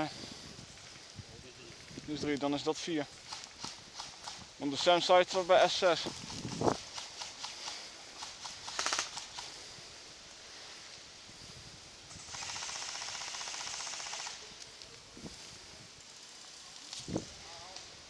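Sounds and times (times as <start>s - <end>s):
airsoft guns firing full-auto: 6.9s - 9.5s, 12.2s - 14.5s.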